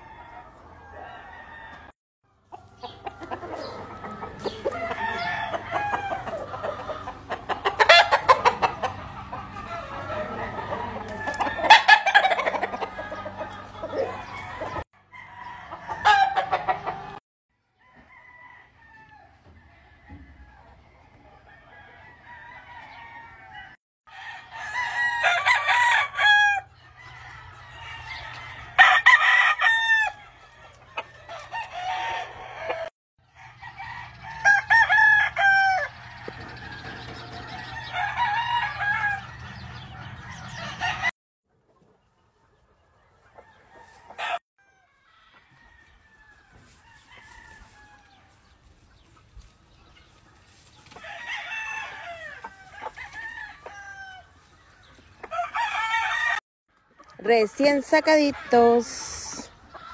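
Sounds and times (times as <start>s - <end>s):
hens clucking: 0.0s - 17.2s, 30.1s - 32.9s, 33.5s - 44.4s, 46.9s - 56.2s, 56.8s - 59.9s
roosters crowing: 0.0s - 41.2s, 43.2s - 56.4s, 57.2s - 59.9s.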